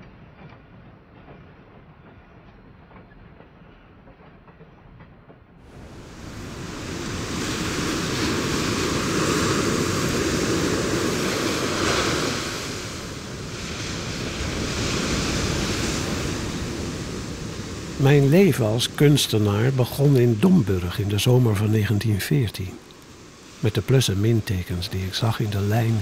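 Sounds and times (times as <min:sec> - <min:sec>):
sea surf washing onto beach: 0:05.7 - 0:26.0.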